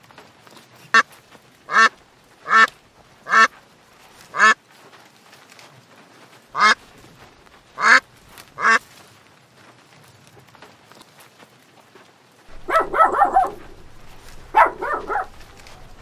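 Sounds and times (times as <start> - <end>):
ducks quacking: 1.7 - 3.5, 4.3 - 4.6, 6.6 - 6.8, 7.8 - 8.0, 8.6 - 8.8, 12.5 - 16.0.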